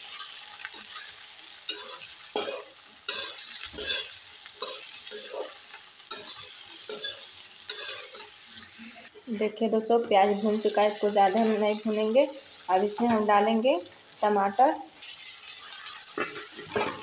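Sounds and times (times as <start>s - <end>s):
vegetables sizzling in hot oil: 0.0s - 17.0s
metal spatula scraping pan: 0.1s - 8.8s, 16.1s - 17.0s.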